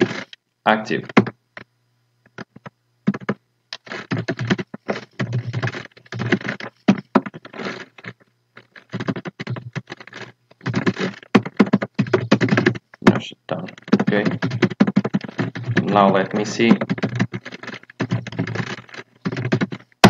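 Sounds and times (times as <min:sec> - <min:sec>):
fast typing on keyboard: 0:03.1 - 0:07.7, 0:08.8 - 0:20.0.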